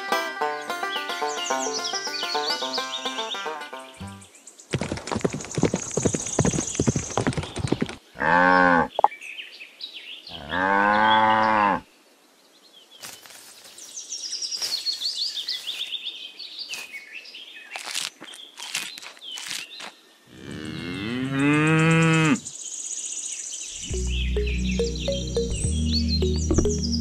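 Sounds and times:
birds chirping: 0.0s - 9.5s, 12.9s - 22.4s, 23.4s - 27.0s
cow mooing: 20.4s - 22.4s.

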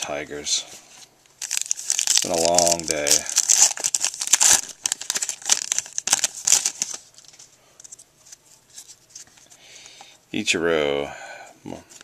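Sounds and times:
wrapper crinkling: 1.4s - 9.4s
faint handling noise: 6.7s - 10.2s.

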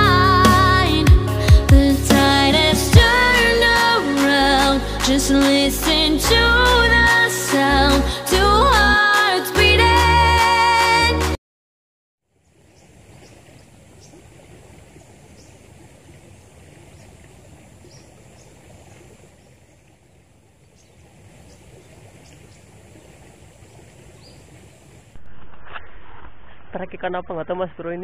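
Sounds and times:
river flowing: 12.3s - 25.2s.

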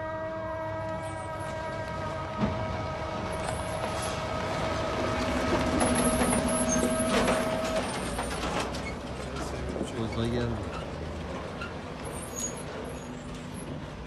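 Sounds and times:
fire truck driving past: 0.0s - 14.0s
high siren-like tone: 5.7s - 7.9s.

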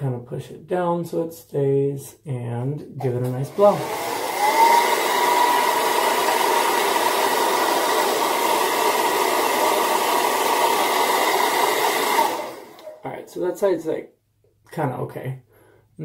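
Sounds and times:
hair dryer running: 3.2s - 13.0s.

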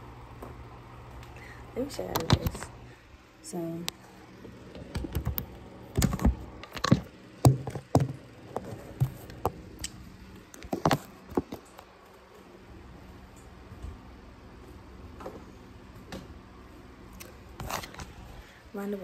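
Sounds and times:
fingers tapping and rubbing a phone: 4.8s - 9.6s.

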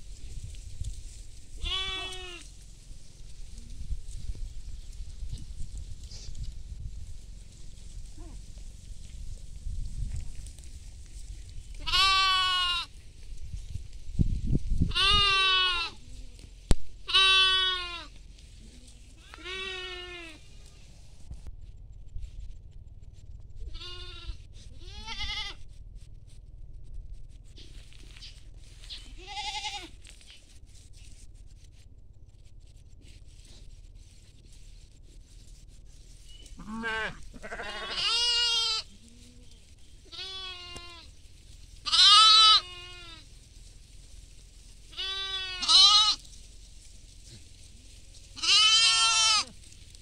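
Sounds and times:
young livestock bleating: 1.6s - 2.6s, 11.8s - 12.9s, 14.9s - 20.9s, 23.6s - 25.6s, 28.8s - 30.0s, 36.4s - 41.2s, 41.8s - 43.3s, 44.9s - 46.3s, 48.3s - 49.6s.

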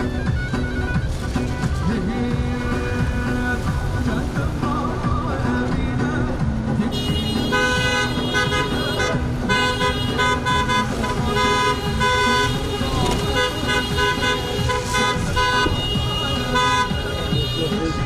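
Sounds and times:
road traffic: 0.0s - 18.0s
car horns honking: 6.8s - 18.0s.

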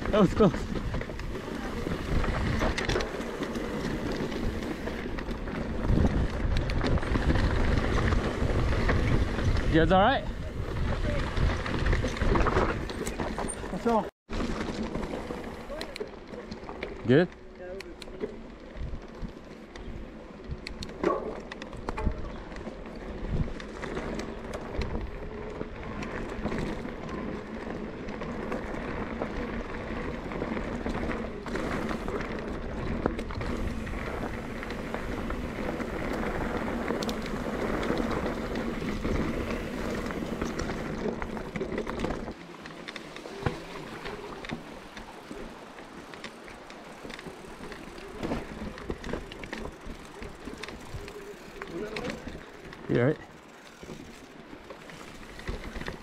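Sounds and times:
wind rush on microphone: 0.0s - 13.3s
bike clicks and rattles: 0.0s - 56.0s
bike tyres on dirt and rock: 0.0s - 56.0s.

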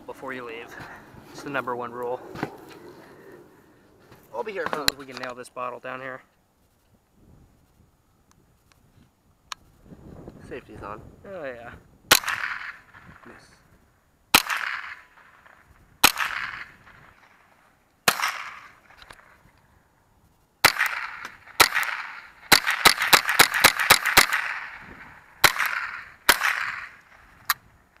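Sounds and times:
rifle shots with echo: 12.1s - 13.4s, 14.3s - 19.3s, 20.6s - 27.5s.

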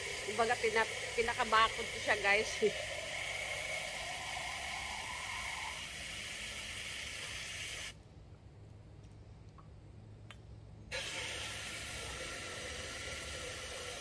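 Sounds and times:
water hissing from hose nozzle: 0.0s - 8.0s, 10.9s - 14.0s.

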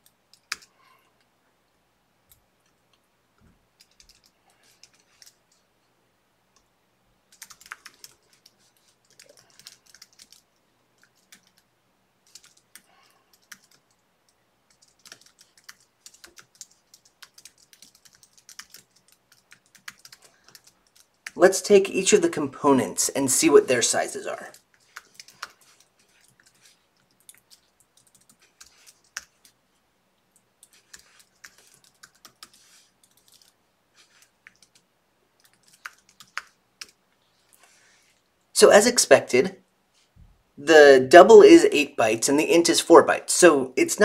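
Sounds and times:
typing on a keyboard: 0.0s - 0.8s, 3.8s - 5.6s, 7.3s - 14.0s, 14.7s - 21.4s, 24.5s - 29.6s, 30.4s - 34.8s, 35.4s - 37.0s.

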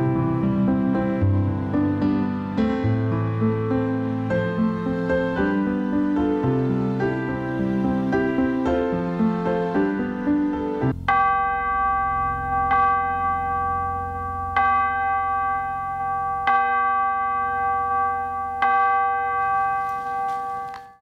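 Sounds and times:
low hum: 0.0s - 19.6s
bell ringing: 1.0s - 21.0s.

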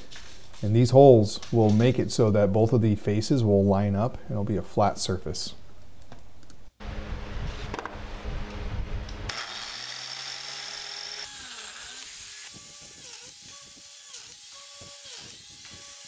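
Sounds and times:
biscuit joiner motor cutting wood: 9.3s - 16.0s.

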